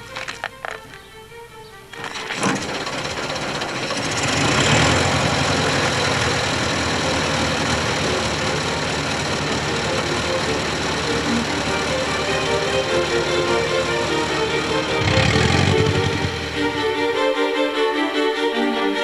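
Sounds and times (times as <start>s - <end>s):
old car engine starting and running: 1.8s - 17.6s.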